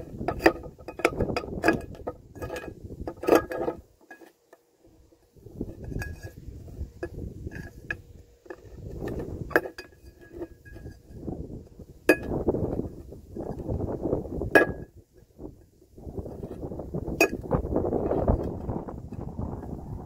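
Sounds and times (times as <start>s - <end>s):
scraping metal: 0.0s - 11.4s.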